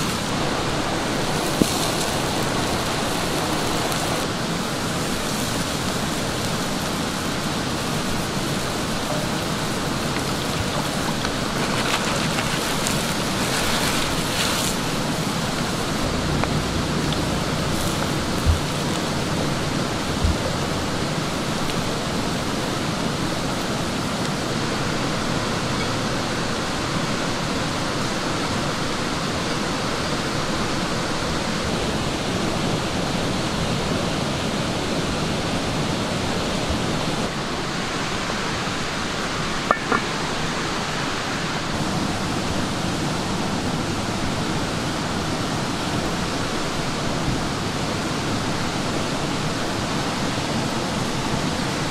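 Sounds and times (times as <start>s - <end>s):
food simmering with bubbling hiss: 0.0s - 31.1s
wooden spoon knocking on pan: 39.7s - 40.1s.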